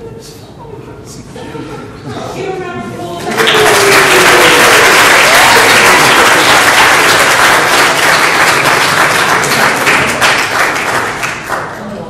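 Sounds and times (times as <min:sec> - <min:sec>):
crowd applauding: 0:03.3 - 0:11.9.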